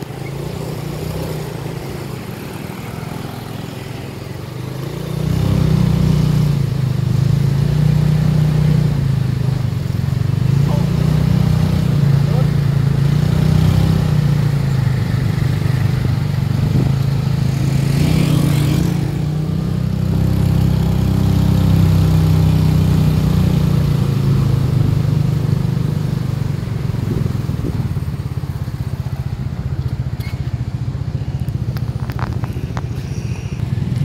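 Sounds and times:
motorcycle engine running: 0.0 - 34.0
road and wind noise: 0.0 - 34.0.

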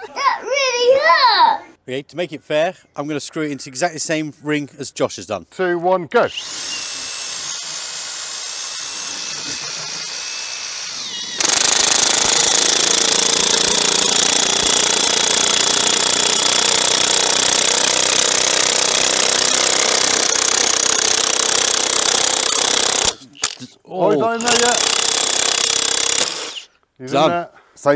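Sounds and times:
impact wrench motor whirring: 6.3 - 23.6, 24.3 - 26.7
impact wrench hammering rattle: 6.4 - 23.6, 24.4 - 26.7.

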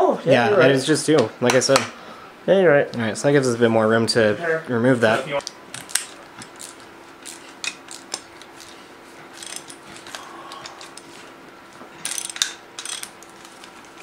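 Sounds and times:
ratchet wrench clicking: 9.4 - 9.8, 12.0 - 13.2.

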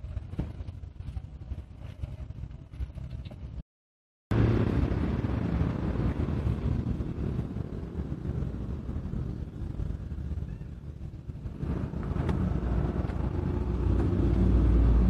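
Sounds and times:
street traffic rumble: 4.3 - 15.0.

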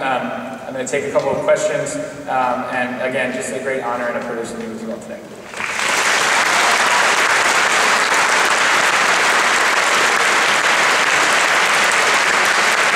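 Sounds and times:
audience applauding: 5.5 - 12.9.

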